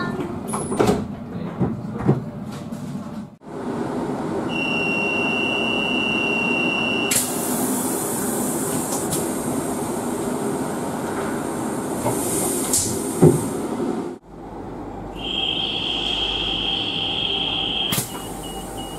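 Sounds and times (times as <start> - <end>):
train departure whistle: 4.5 - 7.4, 15.1 - 18.9
loud hiss of air: 7.1 - 10.2, 11.8 - 13.6
sliding doors thudding shut: 12.0 - 13.6.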